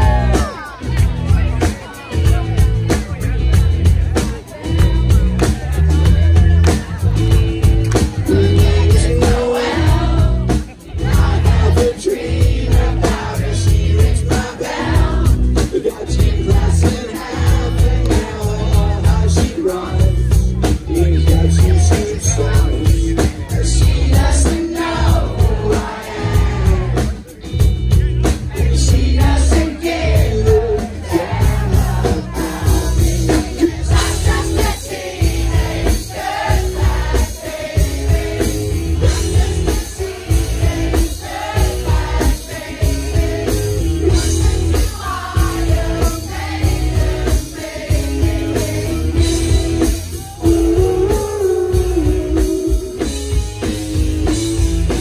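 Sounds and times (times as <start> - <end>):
live band playing: 0.0 - 55.0
person singing: 39.1 - 53.4.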